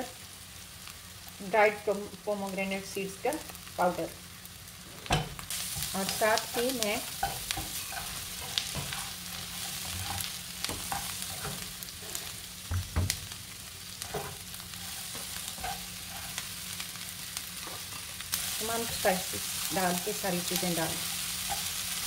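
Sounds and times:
food sizzling in a frying pan: 0.0s - 22.0s
spatula scraping a pan: 7.0s - 12.5s, 14.0s - 16.6s, 20.4s - 22.0s.

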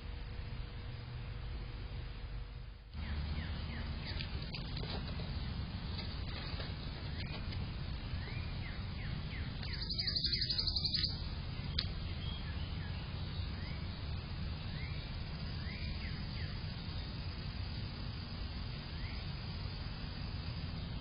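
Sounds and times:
steady low hum: 0.0s - 21.0s
bird chirps: 3.0s - 17.4s, 18.7s - 19.5s
fast high bird trill: 8.2s - 14.0s.

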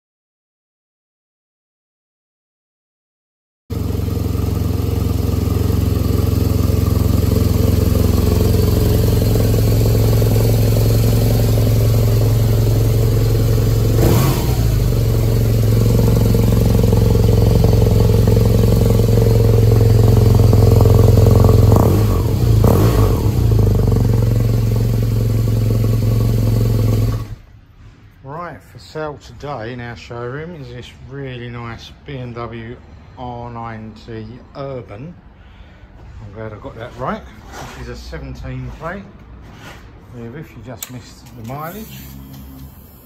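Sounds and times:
motorcycle engine idling: 3.7s - 27.4s.

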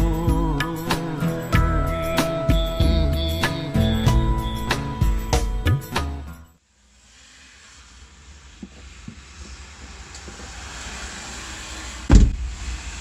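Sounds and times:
loud thump: 12.1s - 12.8s.

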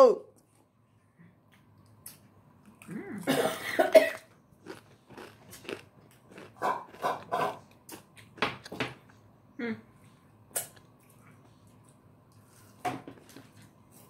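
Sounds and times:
person coughing: 3.2s - 4.3s.

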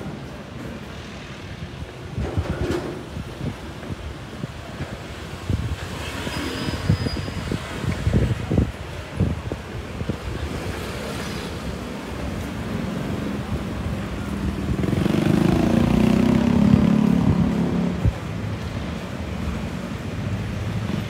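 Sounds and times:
street noise: 0.0s - 21.0s
vehicle engine passing: 14.7s - 18.2s.

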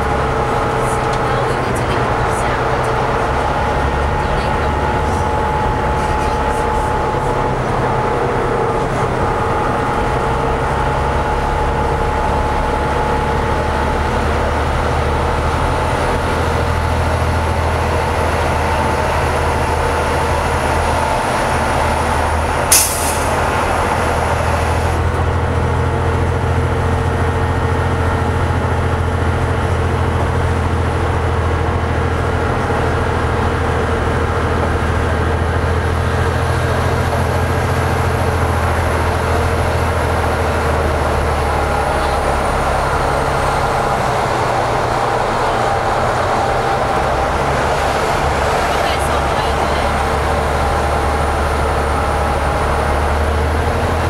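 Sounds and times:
bus engine drone with whine: 0.0s - 54.0s
brief sharp noise: 22.7s - 23.4s.

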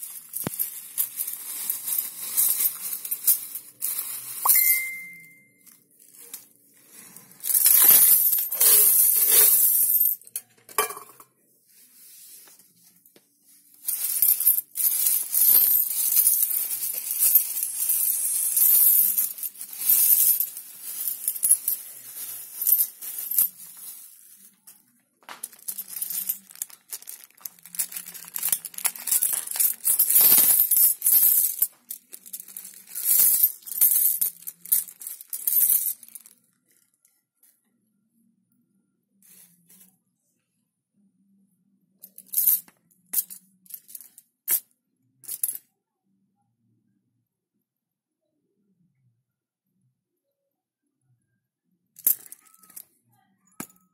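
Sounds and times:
coins clinking on tile floor: 0.0s - 11.2s, 13.8s - 36.4s, 42.0s - 44.6s, 45.2s - 45.6s, 52.0s - 52.9s
plastic bag crinkling: 25.5s - 30.2s.

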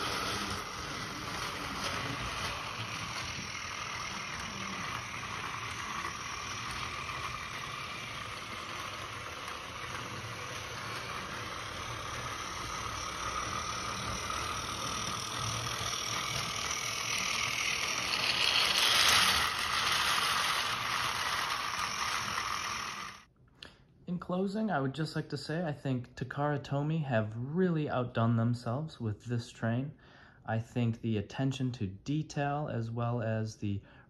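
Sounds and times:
plastic wheels rattling: 0.0s - 23.2s
toy train motor whirring: 0.0s - 23.3s.

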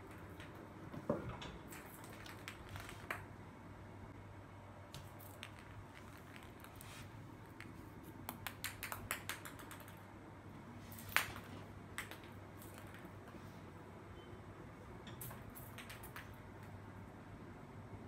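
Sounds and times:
ping pong ball bouncing on stone: 8.2s - 10.0s, 11.1s - 13.0s.

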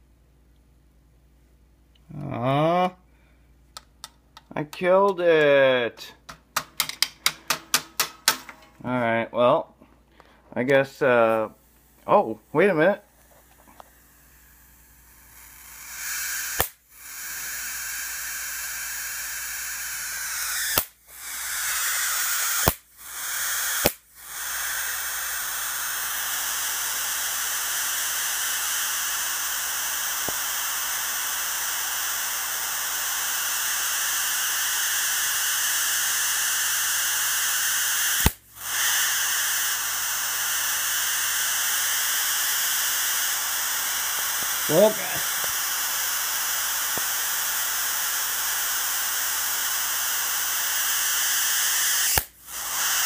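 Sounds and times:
electric arc hissing: 13.4s - 53.0s
electric arc snapping: 15.4s - 16.8s, 20.4s - 21.0s, 21.7s - 22.9s, 23.6s - 24.1s, 29.4s - 33.9s, 36.6s - 52.4s.

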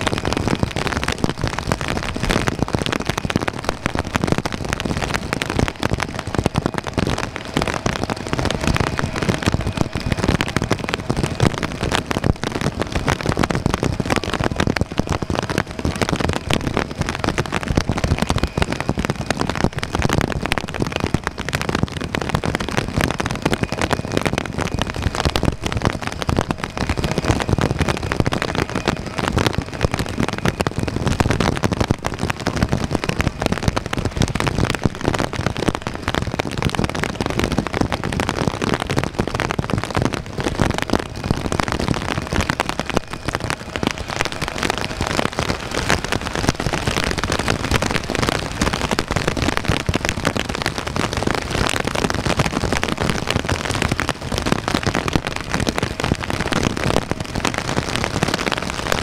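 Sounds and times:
heavy rain pattering: 0.0s - 59.0s
jet engines faint whine: 0.0s - 59.0s.

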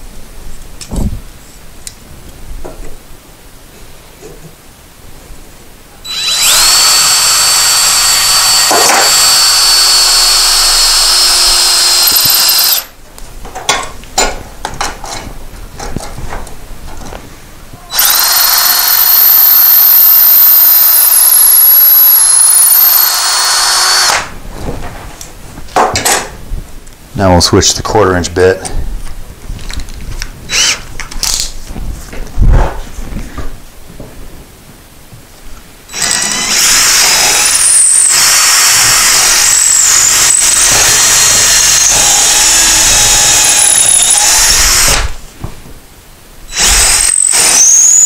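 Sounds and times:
cordless drill boring into wood: 6.1s - 12.9s, 17.9s - 24.3s, 30.5s - 31.4s, 35.9s - 45.2s, 46.5s - 48.0s.

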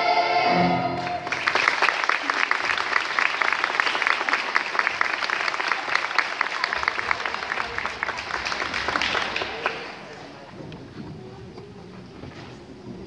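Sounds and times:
audience applauding: 1.0s - 10.5s.

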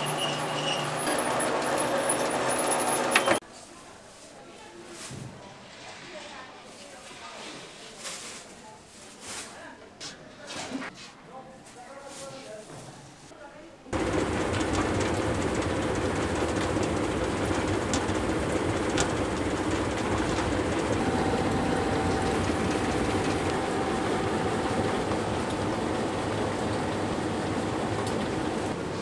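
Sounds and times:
dough mixer rumbling: 0.0s - 3.4s, 14.0s - 29.0s.

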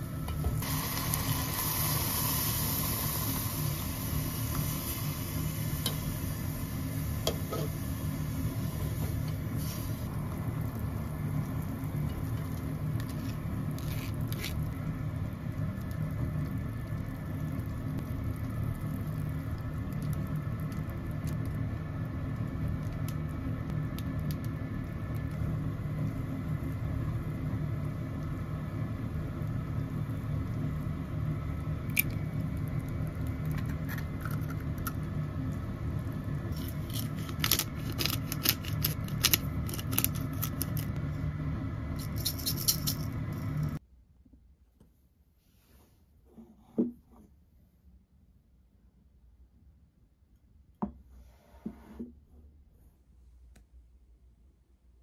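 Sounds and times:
gas stove low rumble: 0.0s - 43.8s.

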